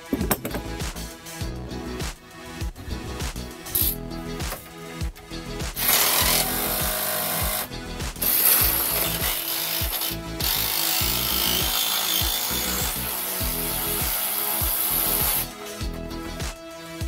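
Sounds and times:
instrumental music with kick drum: 0.0 - 17.0
rough mechanical rasping: 5.8 - 15.5.

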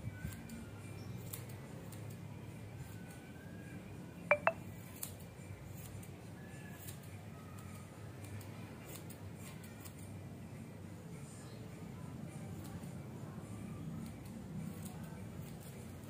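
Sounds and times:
scissors snipping fur: 0.1 - 3.4, 4.7 - 10.2, 12.4 - 13.2, 13.8 - 16.0.

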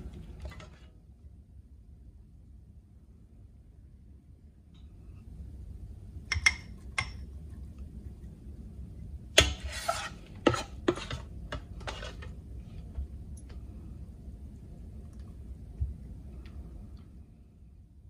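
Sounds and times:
spoon scraping saucepan: 9.4 - 12.4.

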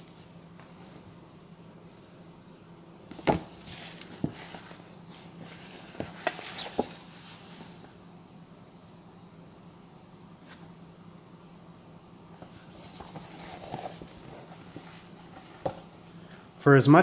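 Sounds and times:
paper rustling: 3.1 - 7.9, 12.4 - 15.9.

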